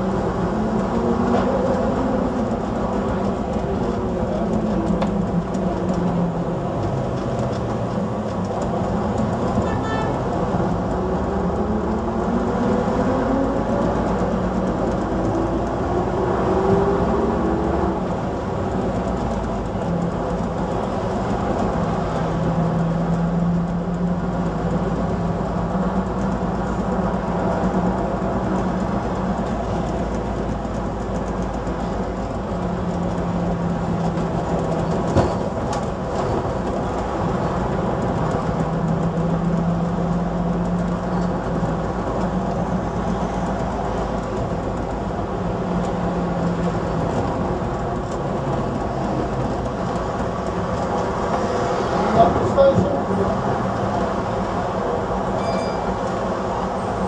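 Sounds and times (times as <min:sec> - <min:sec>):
bus engine whine and hum: 0:00.0 - 0:57.0.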